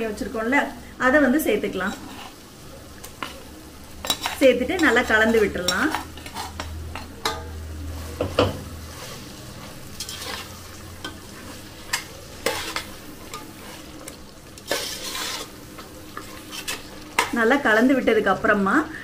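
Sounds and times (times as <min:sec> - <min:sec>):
food sizzling: 0:00.0 - 0:19.0
ladle scraping a metal pot: 0:04.0 - 0:07.4, 0:08.2 - 0:14.0, 0:14.6 - 0:17.3.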